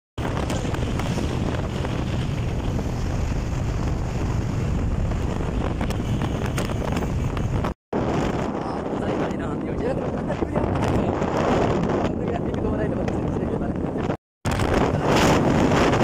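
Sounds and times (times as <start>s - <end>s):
motorcycle running: 0.2s - 7.8s
wind rushing over microphone: 0.2s - 16.0s.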